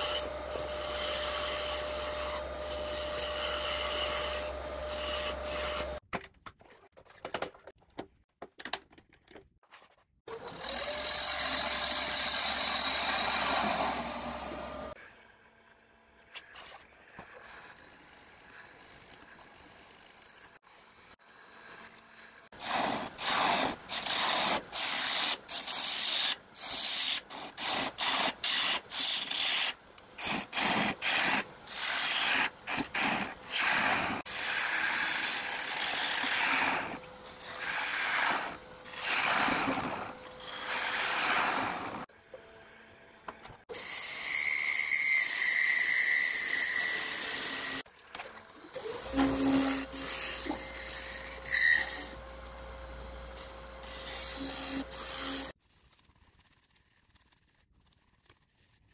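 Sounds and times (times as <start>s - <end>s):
wood lathe scraping hiss: 10.5s - 15.0s, 48.8s - 52.2s.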